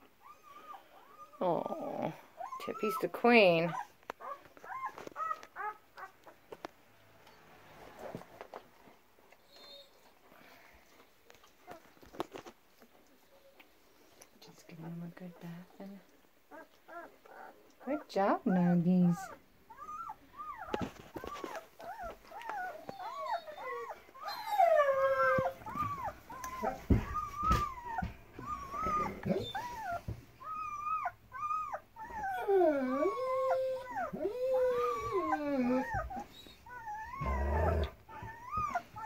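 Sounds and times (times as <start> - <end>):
puppies crying and whining: 0.0 - 6.4, 9.4 - 10.2, 16.5 - 39.0.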